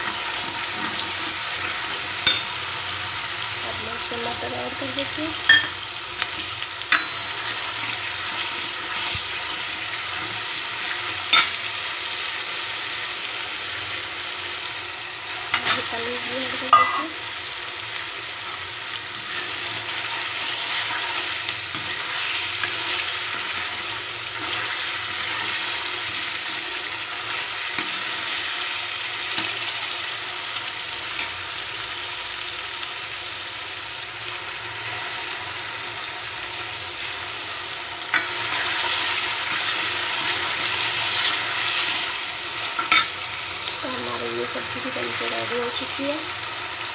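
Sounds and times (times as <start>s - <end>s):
gravy sizzling in a pan: 0.0s - 46.9s
metal spatula clinking on pan: 2.2s - 2.5s, 5.5s - 5.8s, 6.9s - 7.6s, 16.7s - 17.1s, 42.8s - 43.2s.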